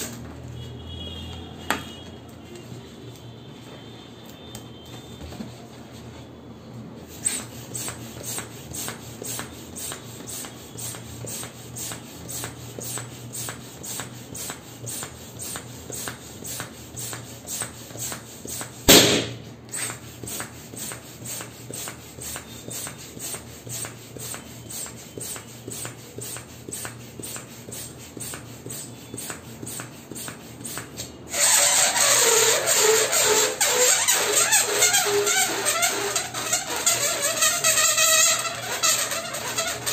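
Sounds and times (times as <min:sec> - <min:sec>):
balloon pump puffs: 0:07.0 - 0:39.9
balloon air squealing out: 0:07.1 - 0:13.0, 0:30.6 - 0:39.9
balloon popping: 0:18.6 - 0:20.0, 0:31.3 - 0:39.9.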